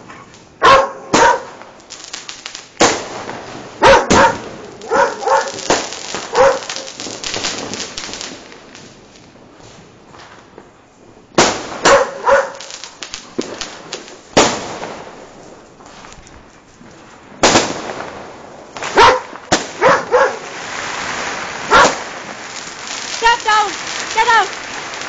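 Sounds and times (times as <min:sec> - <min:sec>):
firecrackers crackling: 0:00.0 - 0:25.0
firework bangs: 0:00.0 - 0:25.0
dog barking: 0:00.1 - 0:01.5, 0:03.8 - 0:05.7, 0:06.3 - 0:06.9, 0:11.8 - 0:12.9, 0:18.9 - 0:20.6, 0:21.7 - 0:22.0.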